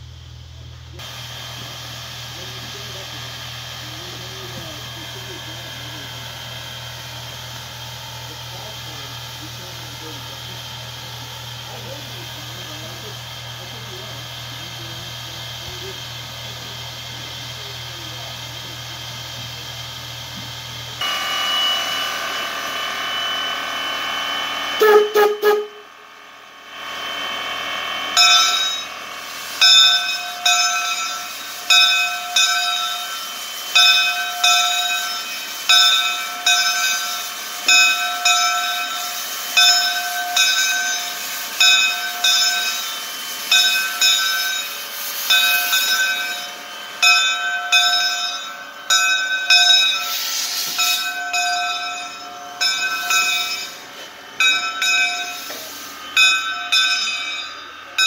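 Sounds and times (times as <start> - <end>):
hiss of escaping steam: 1.0 - 22.7, 29.2 - 47.1, 49.6 - 51.2, 55.1 - 56.4
locomotive bell ringing: 2.4 - 58.0.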